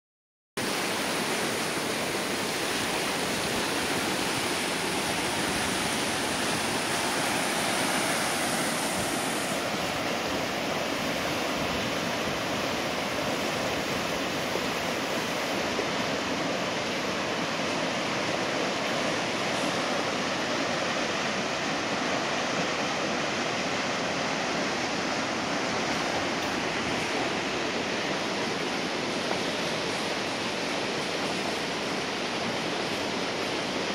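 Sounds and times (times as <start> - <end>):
floodwater rushing: 0.6 - 33.9.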